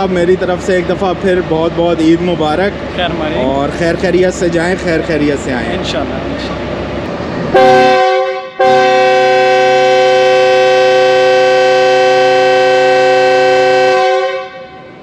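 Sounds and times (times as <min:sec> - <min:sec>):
locomotive air horn blasts: 0:07.5 - 0:15.0.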